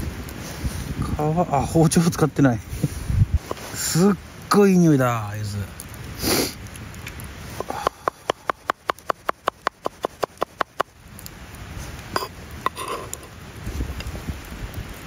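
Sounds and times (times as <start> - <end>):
person sniffing: 6.2 - 6.6
knife chopping on wooden board: 7.6 - 10.9.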